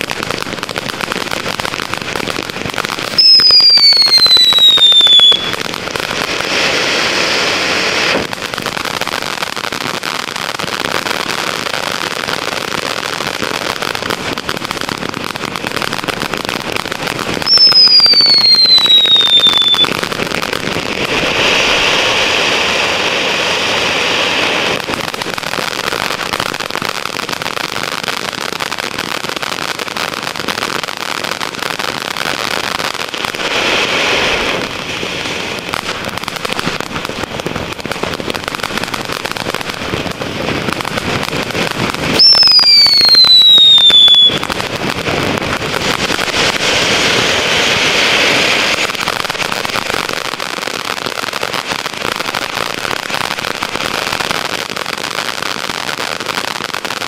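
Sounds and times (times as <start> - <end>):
firework fountain hissing and crackling: 0.0 - 57.0
falling firework whistle: 2.7 - 27.0, 41.4 - 57.0.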